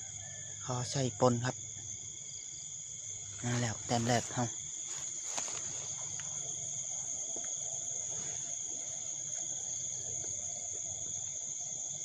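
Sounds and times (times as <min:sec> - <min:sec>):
night insects trilling: 0:00.0 - 0:12.0
faint rustles of grass: 0:02.6 - 0:11.8.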